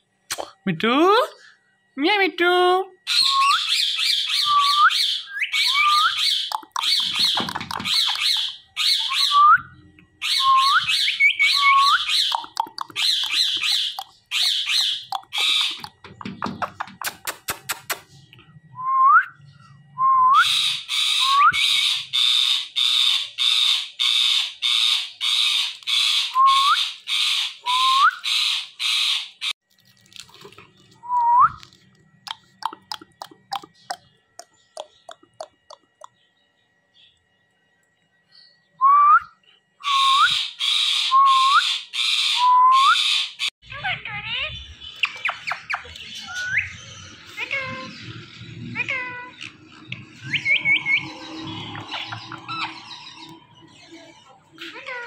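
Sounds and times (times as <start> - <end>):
parakeet harsh calls: 3.1 - 9.4, 10.2 - 16.0, 20.5 - 27.6, 28.2 - 29.5
fast clicks: 12.3 - 14.1.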